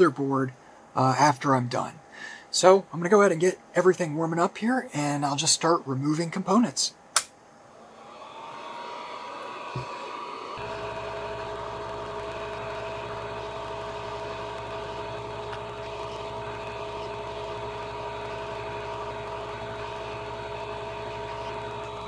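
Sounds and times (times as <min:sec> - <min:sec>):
whining tones: 0:07.6 - 0:22.0
hot-air blower whirring: 0:07.7 - 0:22.0
low hum: 0:10.6 - 0:22.0.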